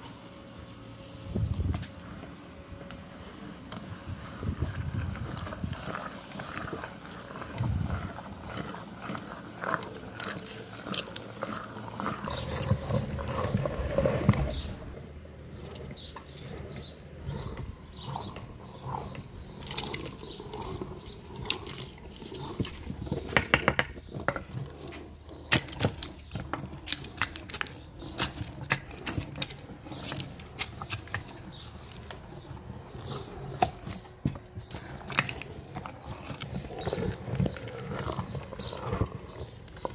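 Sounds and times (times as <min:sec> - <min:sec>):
meat grinder crushing plastic: 0:10.2 - 0:13.4.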